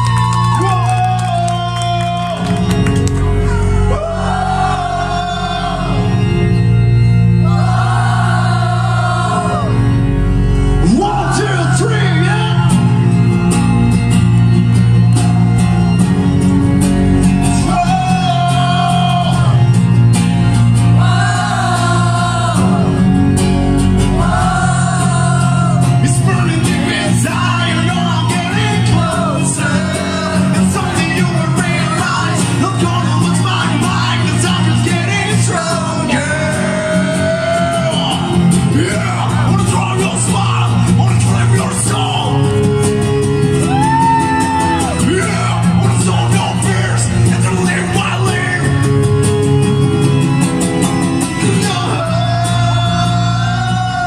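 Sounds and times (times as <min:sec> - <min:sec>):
held accompaniment chords: 0:00.0 - 0:54.0
amplified voice singing: 0:03.4 - 0:13.2, 0:17.5 - 0:19.8, 0:20.8 - 0:42.6, 0:44.0 - 0:48.9, 0:51.4 - 0:54.0.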